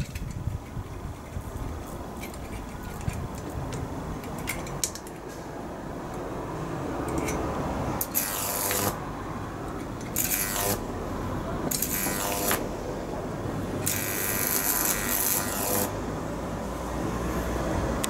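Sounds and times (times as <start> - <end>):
high-voltage arcs crackling: 8.0 - 9.0, 10.1 - 10.9, 11.7 - 12.7, 13.8 - 16.0.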